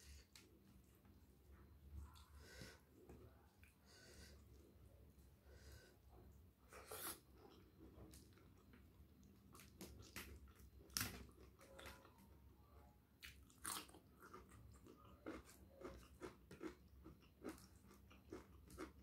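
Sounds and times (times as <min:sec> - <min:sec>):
crunching and chewing cabbage: 0:06.8 - 0:12.3, 0:13.2 - 0:19.0.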